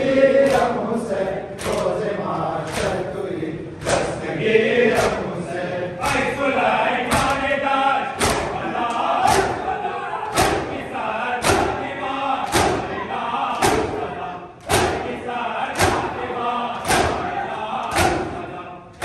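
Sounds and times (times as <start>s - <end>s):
voices chanting: 0.0s - 19.0s
men slapping their chests: 0.4s - 0.8s, 1.6s - 2.1s, 2.7s - 3.1s, 3.8s - 4.2s, 4.9s - 5.3s, 6.0s - 6.5s, 7.1s - 7.5s, 8.1s - 11.8s, 12.4s - 15.2s, 15.8s - 16.2s, 16.8s - 19.0s.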